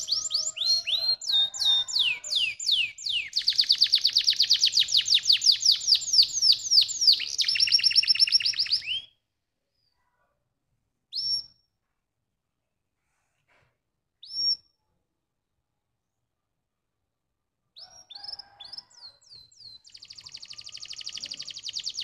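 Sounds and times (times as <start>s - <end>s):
canary singing trills: 0.0s - 9.2s, 17.8s - 22.0s.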